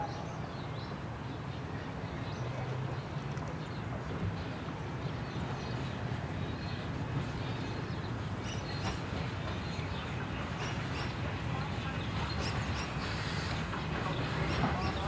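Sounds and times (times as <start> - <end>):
steam locomotive rumbling: 3.9 - 15.0
steam hissing: 12.4 - 15.0.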